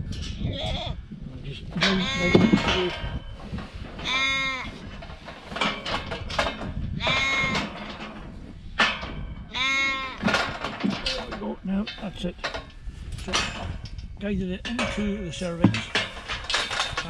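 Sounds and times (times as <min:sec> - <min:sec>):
livestock bleating: 0:01.8 - 0:02.8, 0:04.0 - 0:04.7, 0:07.0 - 0:07.6, 0:09.5 - 0:10.2.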